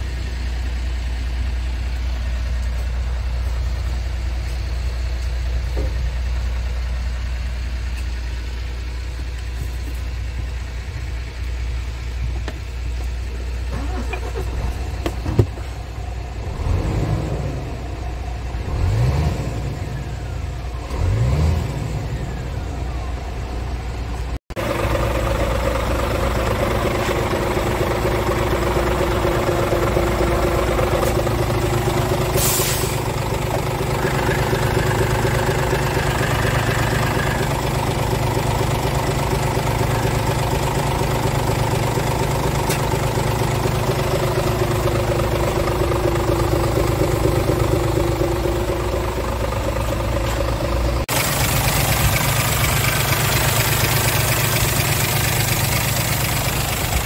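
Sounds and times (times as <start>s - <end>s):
diesel truck engine idling: 0.0s - 57.0s
engine revving: 16.4s - 17.9s, 18.5s - 22.7s, 24.5s - 57.0s
air hiss: 32.3s - 33.1s.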